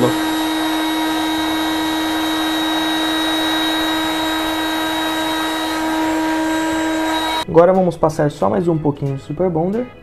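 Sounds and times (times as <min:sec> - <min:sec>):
heat gun blowing air: 0:00.0 - 0:07.4.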